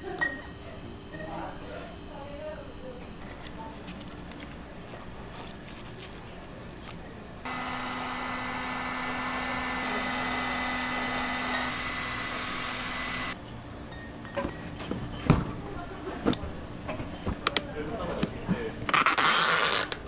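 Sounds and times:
small machine whirring: 7.4 - 13.4.

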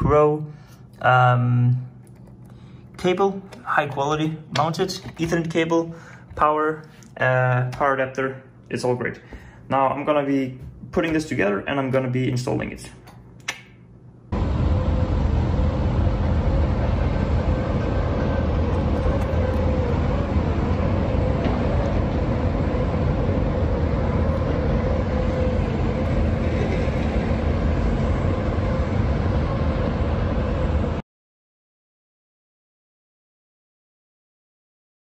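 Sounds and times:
faint wavering hum: 12.5 - 31.0
distant city noise: 14.4 - 31.0.

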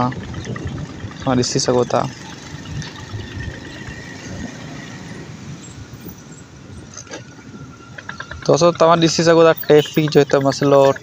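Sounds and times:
motorcycle engine rumble: 0.0 - 11.0
road traffic: 0.0 - 11.0
wind and road hiss: 2.2 - 9.6.

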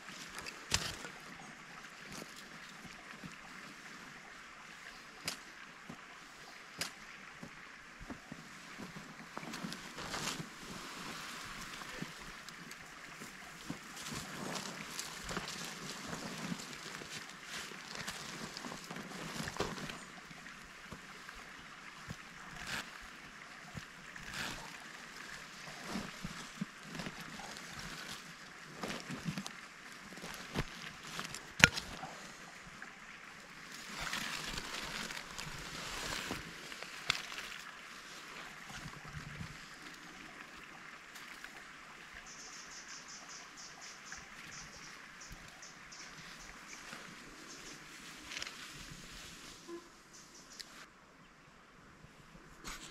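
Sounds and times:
stream running: 0.0 - 52.9
hand digging soil: 8.8 - 21.4, 22.0 - 32.2, 33.7 - 39.0.

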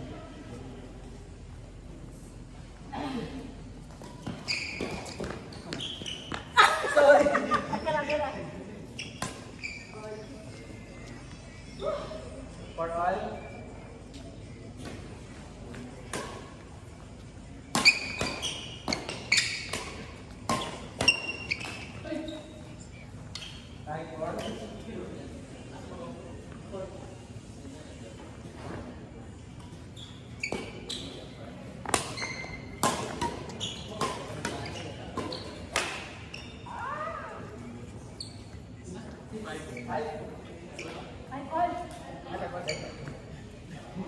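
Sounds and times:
shoes squeaking on court: 3.8 - 11.9, 14.7 - 24.8, 29.6 - 36.9, 38.0 - 38.8, 39.4 - 41.2, 42.3 - 43.4
rackets hitting shuttlecock: 31.8 - 36.2.

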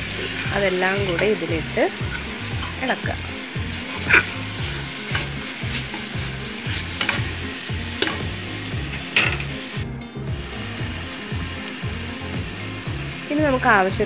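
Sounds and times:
metal spoon scraping a pot: 0.0 - 2.8, 3.6 - 7.4
food sizzling in oil: 0.0 - 14.0.

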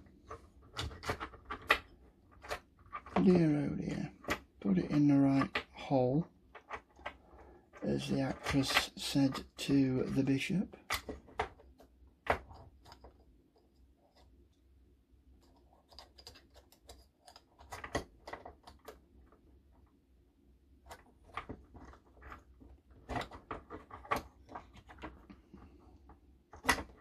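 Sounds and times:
small plastic parts clicking: 0.2 - 3.4, 6.5 - 9.6, 10.8 - 14.3, 15.3 - 19.4.

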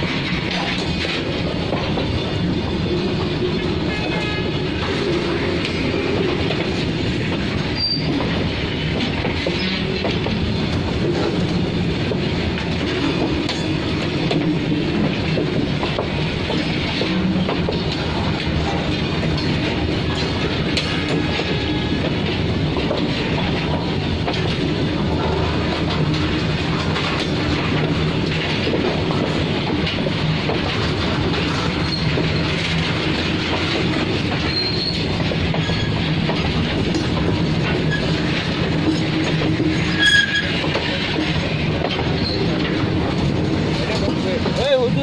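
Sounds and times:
train wheels rumbling on rails: 0.0 - 45.0
high-pitched wheel squeals: 7.8 - 8.2, 34.4 - 36.0, 39.8 - 40.6.

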